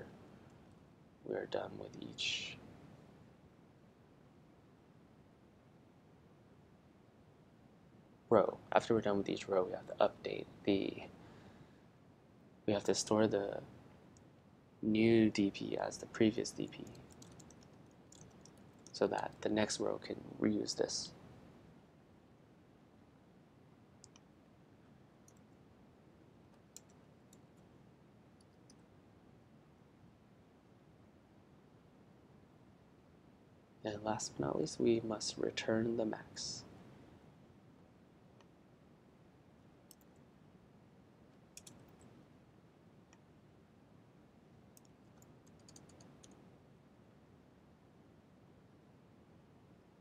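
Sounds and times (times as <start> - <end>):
keyboard clicks: 16.6 - 19.4, 24.0 - 24.3, 26.5 - 27.5, 39.9 - 40.2, 41.5 - 42.1, 44.8 - 46.4.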